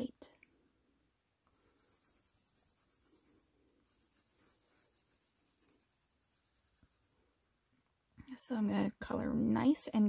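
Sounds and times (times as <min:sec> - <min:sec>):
crayon scribbling on paper: 0:01.5 - 0:07.2.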